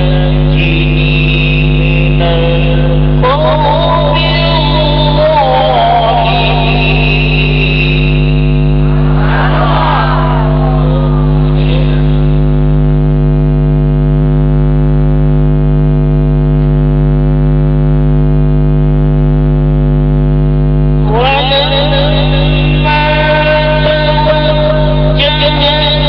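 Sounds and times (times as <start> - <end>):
person reciting in song: 0.0 - 7.8, 10.3 - 12.4, 21.0 - 26.0
sound system hum: 0.0 - 26.0.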